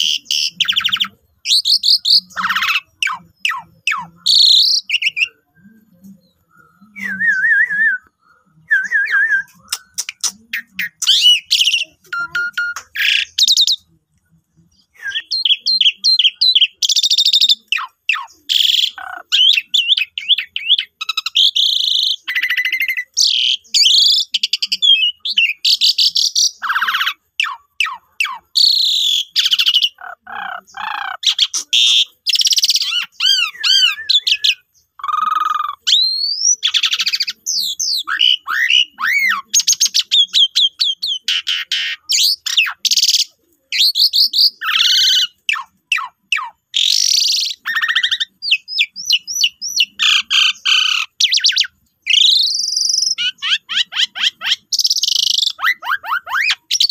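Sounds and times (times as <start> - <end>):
bird singing whistles and rattles: 31.3 - 56.9.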